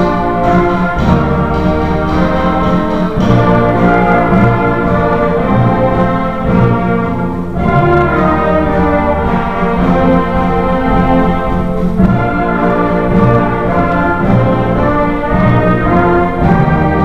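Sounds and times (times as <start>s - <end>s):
concert band playing: 0.0s - 17.0s.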